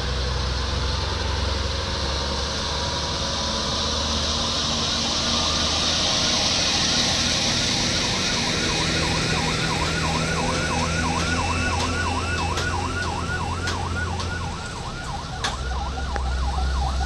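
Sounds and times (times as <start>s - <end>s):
diesel truck engines droning: 0.0s - 17.0s
siren yelping: 4.4s - 17.0s.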